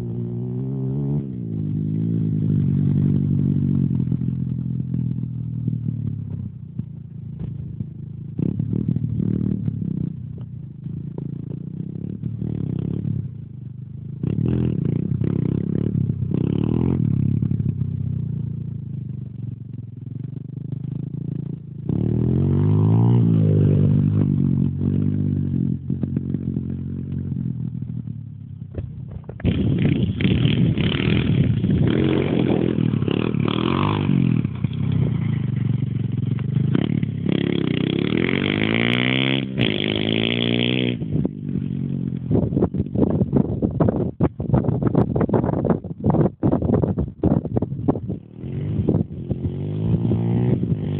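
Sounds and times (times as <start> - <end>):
pit bike engine revving: 29.3 - 42.6, 48.2 - 50.9.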